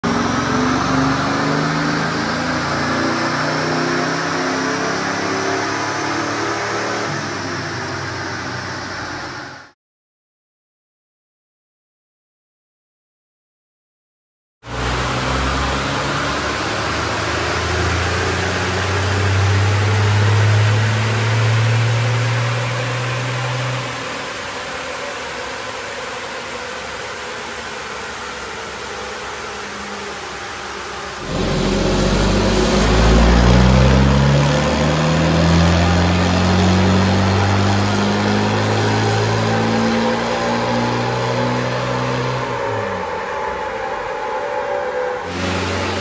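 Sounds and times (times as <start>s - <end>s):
diesel engine revving: 0.0s - 9.7s, 14.7s - 25.4s, 30.3s - 46.0s
diesel engine running: 28.3s - 44.4s, 45.2s - 46.0s.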